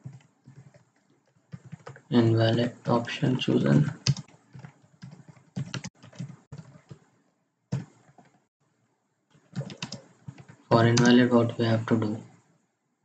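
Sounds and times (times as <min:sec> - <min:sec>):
typing on computer keyboard: 0:00.0 - 0:02.2, 0:03.8 - 0:07.1, 0:07.7 - 0:08.4, 0:09.4 - 0:11.3.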